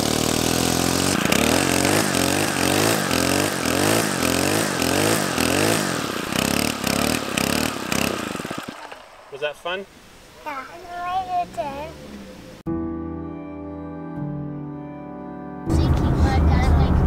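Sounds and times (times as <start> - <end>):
string trimmer engine revving: 0.0 - 9.5.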